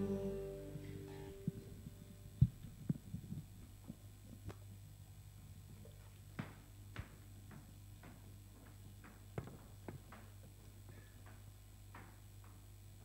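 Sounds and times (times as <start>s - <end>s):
electrical hum: 0.0s - 9.0s
footsteps on stage: 6.3s - 13.0s.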